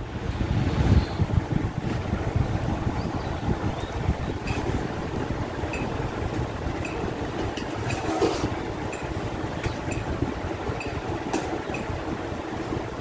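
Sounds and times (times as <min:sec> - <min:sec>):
steady low rumble: 0:00.0 - 0:13.0
spoon scraping metal pot: 0:07.6 - 0:09.2.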